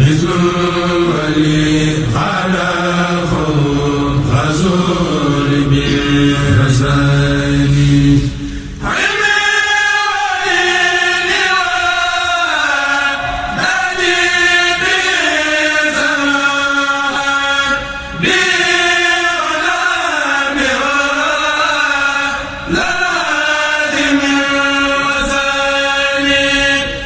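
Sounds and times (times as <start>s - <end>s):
male choir chanting in unison: 0.0s - 27.0s.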